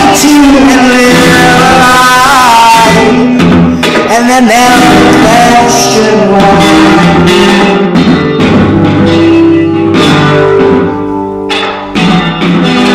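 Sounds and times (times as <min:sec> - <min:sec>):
electric guitar notes and chords: 0:00.0 - 0:12.9
drum hits: 0:06.4 - 0:12.9.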